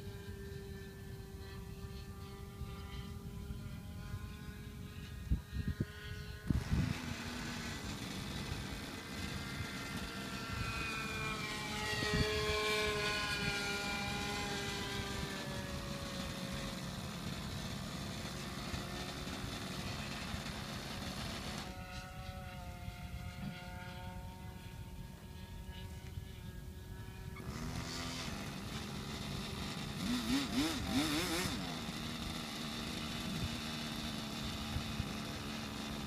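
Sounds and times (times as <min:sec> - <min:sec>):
model airplane engine whining: 0:00.0 - 0:36.0.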